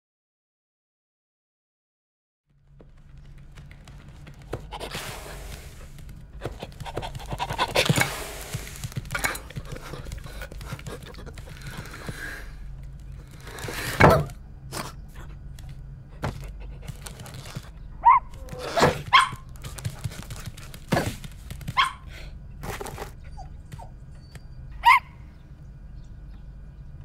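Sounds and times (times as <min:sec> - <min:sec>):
dog whines: 0:18.0 - 0:19.4, 0:23.1 - 0:25.1.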